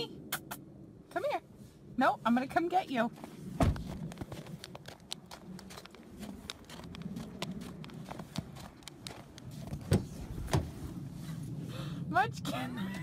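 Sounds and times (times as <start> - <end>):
footsteps in snow: 3.1 - 11.5.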